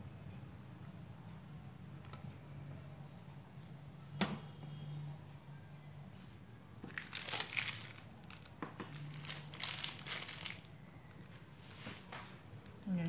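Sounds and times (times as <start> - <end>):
plastic bag crinkling: 6.9 - 11.3.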